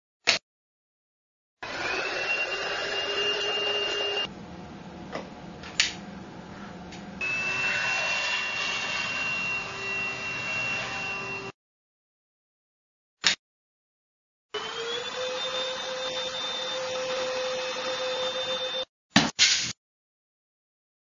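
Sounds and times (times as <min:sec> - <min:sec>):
vacuum cleaner motor whining: 0:01.6 - 0:04.3, 0:07.2 - 0:11.5, 0:14.6 - 0:18.8.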